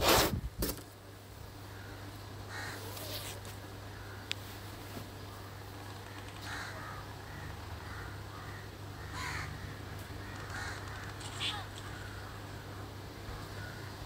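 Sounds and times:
steady low hum: 0.0s - 14.0s
short bird calls: 6.0s - 14.0s.

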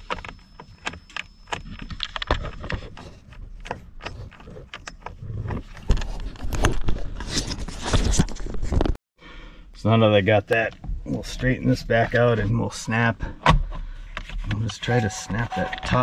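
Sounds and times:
small clicks and rattles: 0.0s - 6.8s.

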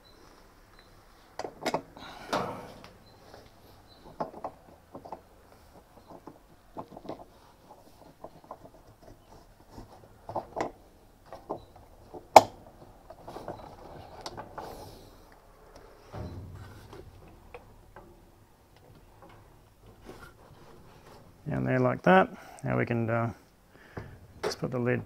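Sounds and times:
clicks and knocks of machine parts: 1.4s - 9.1s.

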